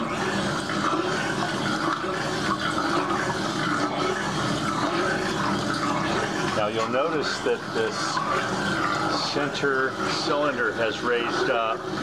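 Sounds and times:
washing machine water sloshing: 0.0 - 12.0.

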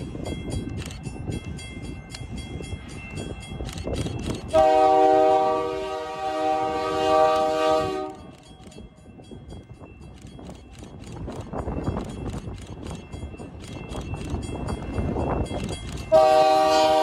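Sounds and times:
railroad crossing bell ringing: 0.0 - 17.0
train rumbling past: 0.0 - 17.0
locomotive air horn: 4.5 - 8.3, 16.1 - 17.0.

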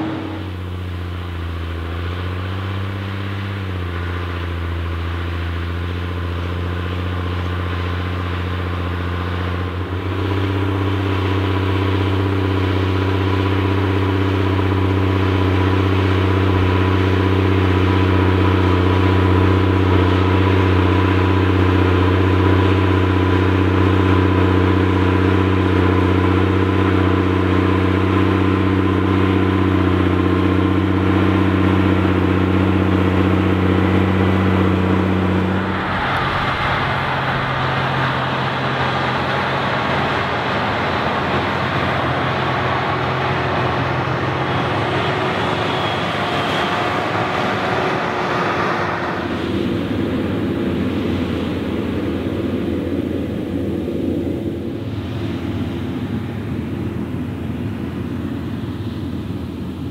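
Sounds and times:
tractor diesel engine droning: 0.0 - 59.9
tractor engine: 0.0 - 59.9.

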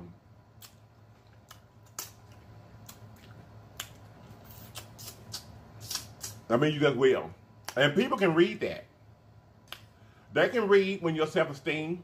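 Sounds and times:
faint low hum: 0.0 - 12.0
mouth clicks and lip smacks: 0.6 - 6.4, 9.6 - 10.0.

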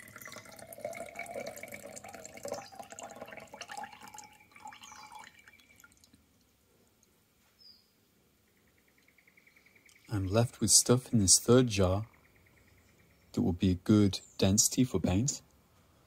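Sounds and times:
water pouring and splashing: 0.0 - 6.2
water trickling and dripping: 0.0 - 7.1.

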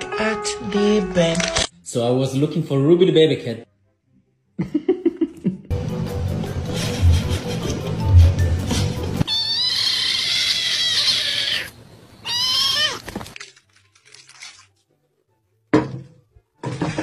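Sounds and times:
kitten hoarse meowing: 9.2 - 13.2.

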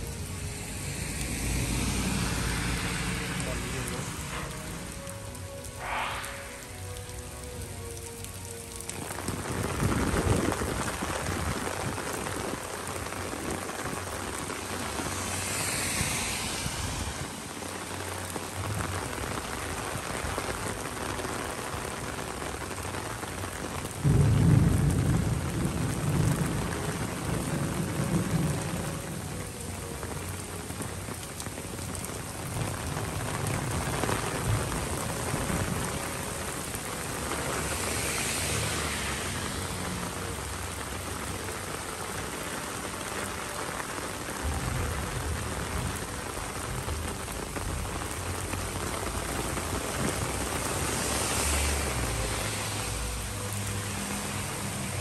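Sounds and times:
heavy rain splashing: 0.0 - 55.0
low rumble: 0.1 - 7.2.

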